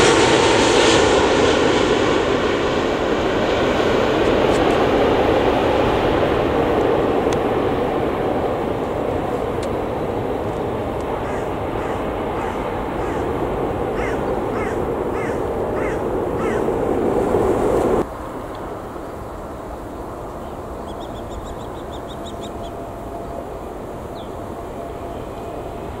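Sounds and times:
jet engines roaring: 0:00.0 - 0:26.0
outdoor hum: 0:00.0 - 0:26.0
bird calling: 0:11.0 - 0:16.8, 0:19.8 - 0:25.6
high bird chirps: 0:20.4 - 0:22.8.

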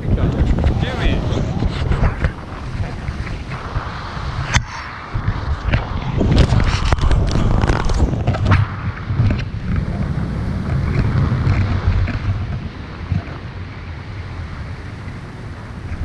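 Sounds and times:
wind buffeting microphone: 0:00.0 - 0:16.0.

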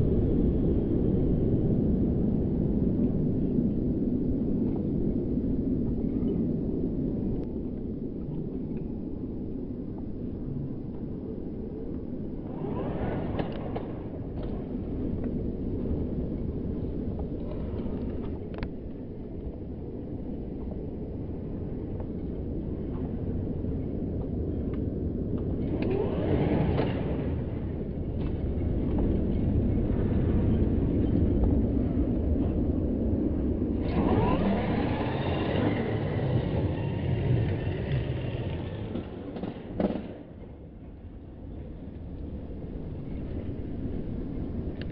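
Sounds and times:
low rumble: 0:00.0 - 0:44.9
rc car motor whining: 0:33.8 - 0:39.2.

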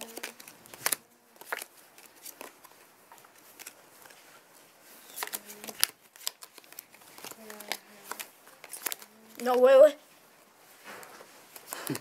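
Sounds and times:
playing cards slapping down: 0:00.0 - 0:02.6, 0:05.1 - 0:09.1.

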